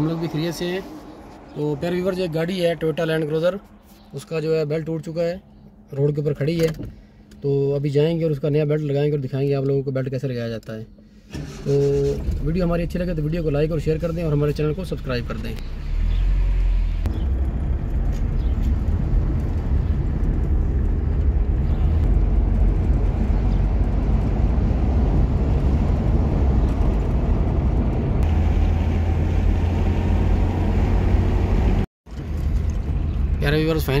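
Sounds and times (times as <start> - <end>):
car engine and road noise: 0.0 - 34.0
heavy low rumble: 12.2 - 34.0.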